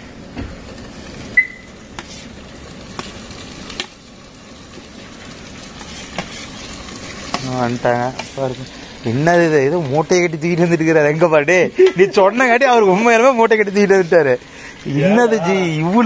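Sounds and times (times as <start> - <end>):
food sizzling in pot: 0.0 - 16.0.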